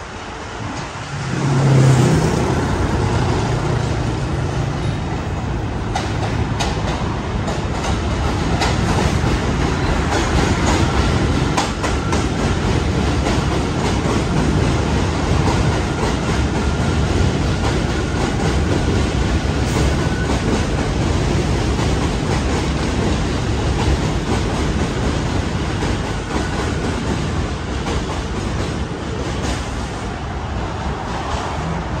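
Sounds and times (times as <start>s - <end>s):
subway train wheels rumbling on rails: 0.0s - 32.0s.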